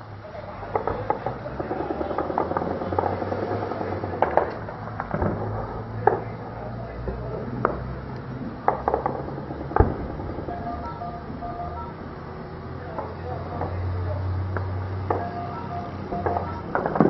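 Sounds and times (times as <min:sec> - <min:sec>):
steady low rumble: 0:02.5 - 0:13.5
distant gunfire single shots: 0:09.7 - 0:11.4.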